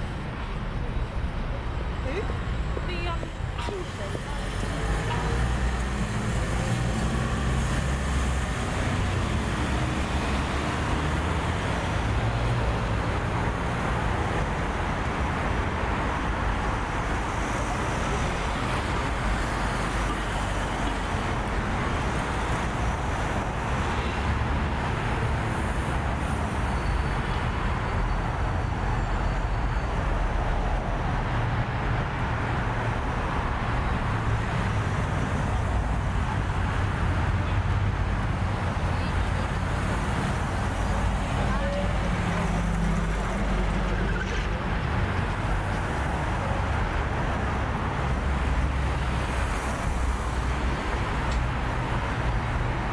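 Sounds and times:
road traffic: 0:00.0 - 0:52.9.

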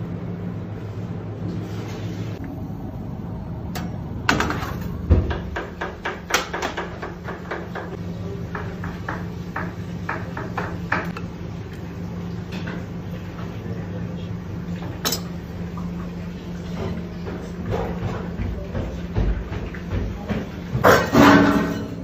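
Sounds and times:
kitchen hum: 0:00.0 - 0:22.0
oven door thump: 0:03.8 - 0:05.8
metal cookware clinking: 0:15.0 - 0:15.4.

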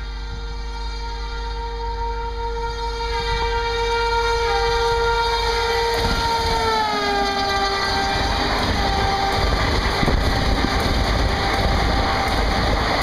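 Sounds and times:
locomotive horn: 0:00.0 - 0:13.0
train wheels on rails: 0:03.1 - 0:13.0.

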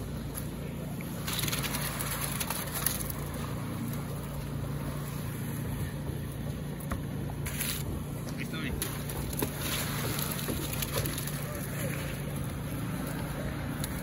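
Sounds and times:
wet concrete scraping: 0:00.4 - 0:04.1, 0:07.4 - 0:14.0.

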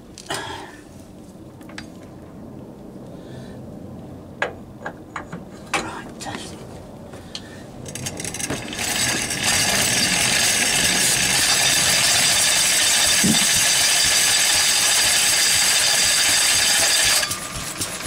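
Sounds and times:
old engine driving mill whirring: 0:07.8 - 0:18.0.

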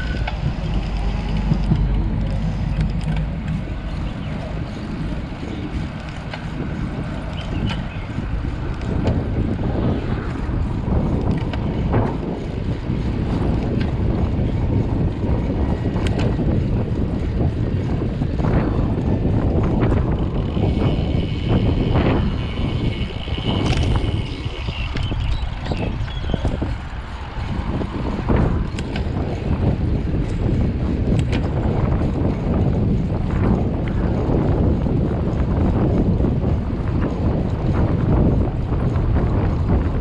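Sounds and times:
wind rushing over microphone: 0:00.0 - 0:40.0
small clicks: 0:23.5 - 0:24.3.

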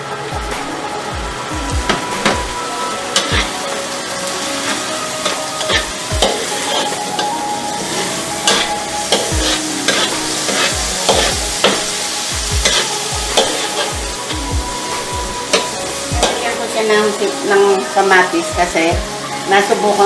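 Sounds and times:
food sizzling in oil: 0:00.0 - 0:20.0
metal spatula scraping wok: 0:03.1 - 0:03.6, 0:04.4 - 0:14.3.

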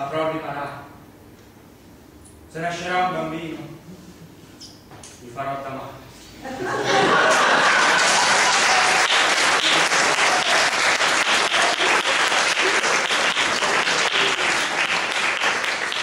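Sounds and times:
audience applauding: 0:07.0 - 0:16.0.

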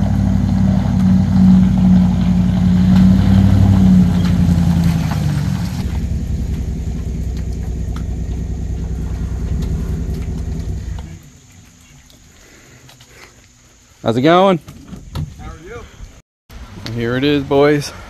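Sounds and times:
pickup truck engine running: 0:00.0 - 0:11.4.

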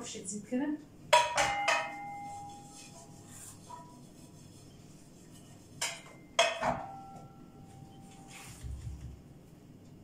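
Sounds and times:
metal kitchenware clinking: 0:01.1 - 0:04.0, 0:05.8 - 0:07.4.

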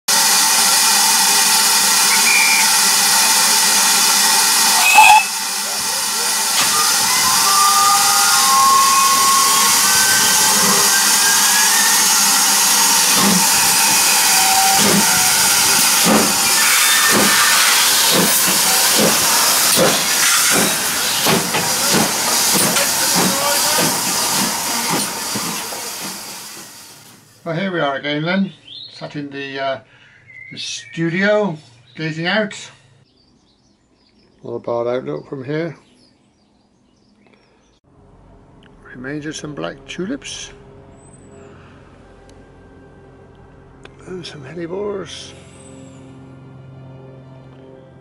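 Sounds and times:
steam hissing: 0:00.1 - 0:27.4
steam locomotive exhaust beats: 0:00.1 - 0:27.4.

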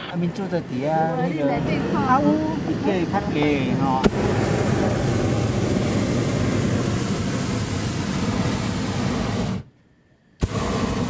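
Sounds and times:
propane burner blast: 0:00.0 - 0:09.7, 0:10.4 - 0:11.0.

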